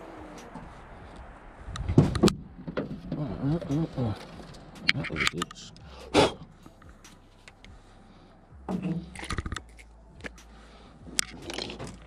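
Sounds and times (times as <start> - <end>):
fishing gear clicking and knocking: 8.7 - 10.4, 11.1 - 12.0.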